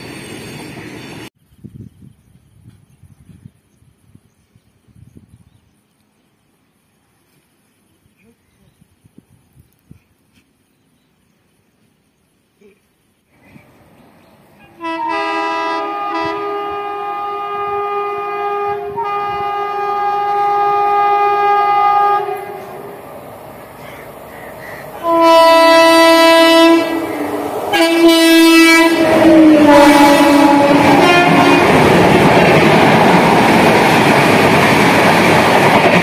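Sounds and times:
train wheels rumbling: 13.6s - 36.0s
train horn blasts: 14.6s - 23.0s, 25.0s - 32.1s.

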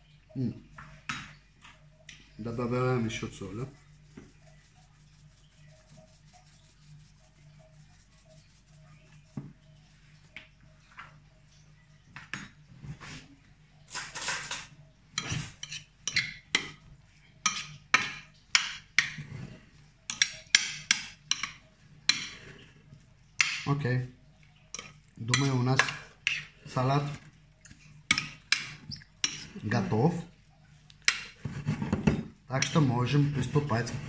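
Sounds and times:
spoon scraping glass dish: 13.9s - 16.4s, 28.1s - 29.7s.

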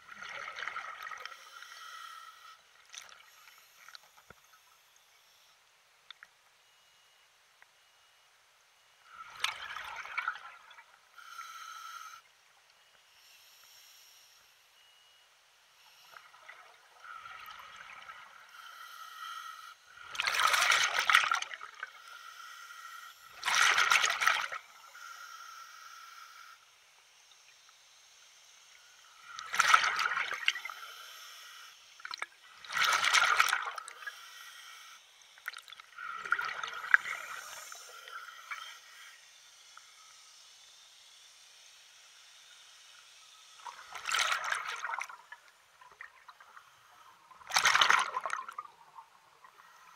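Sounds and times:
water splashing: 29.4s - 30.6s, 32.0s - 33.9s, 43.6s - 46.4s, 47.4s - 48.9s.

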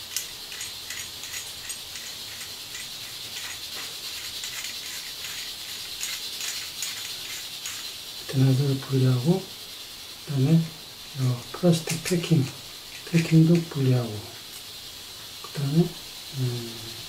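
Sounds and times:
metal sink drain parts clicking: 0.0s - 8.0s, 11.8s - 14.7s
steady faint hiss: 0.0s - 17.0s.

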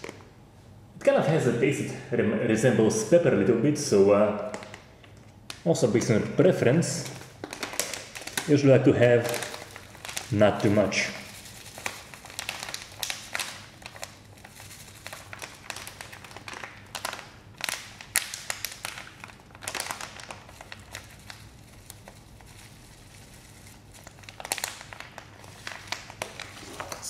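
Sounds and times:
plastic bag crinkling: 0.0s - 0.3s, 3.9s - 27.0s.

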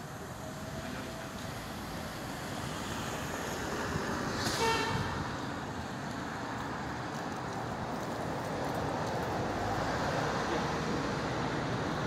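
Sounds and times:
street traffic noise: 0.0s - 12.0s
short horn toot: 4.5s - 5.1s.

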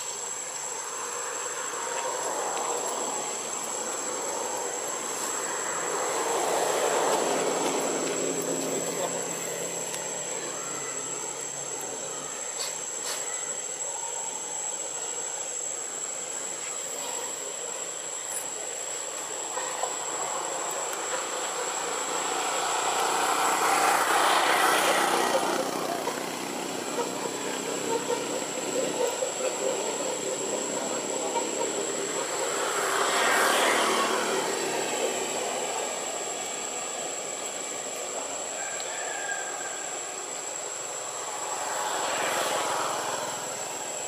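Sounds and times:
distant vehicle passing: 0.0s - 12.4s, 19.1s - 44.0s
steady high-pitched whine: 0.0s - 44.0s.

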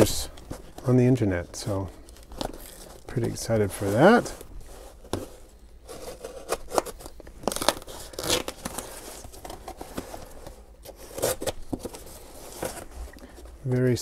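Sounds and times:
tape tearing off cardboard: 5.9s - 9.7s, 10.9s - 12.0s.

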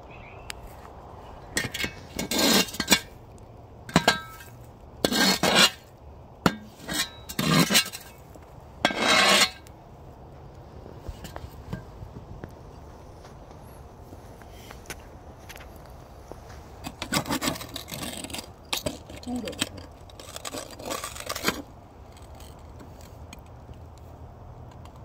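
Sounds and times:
shovel scraping coals off metal lid: 1.5s - 3.2s, 3.9s - 5.9s, 6.5s - 9.7s, 16.8s - 23.2s
metal clinking on iron: 3.9s - 4.5s.

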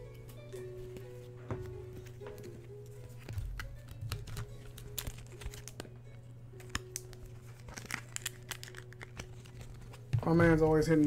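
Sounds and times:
cards and plastic clicking: 2.0s - 10.6s.

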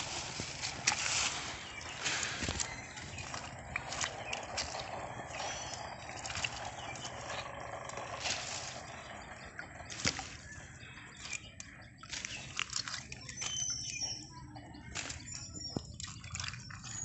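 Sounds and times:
fish flapping wet slaps: 9.9s - 10.4s, 12.0s - 13.5s, 14.9s - 15.3s.

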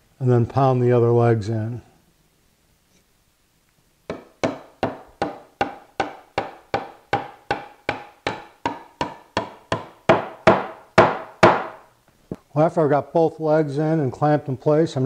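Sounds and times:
mallet pounding wood: 4.1s - 11.8s.

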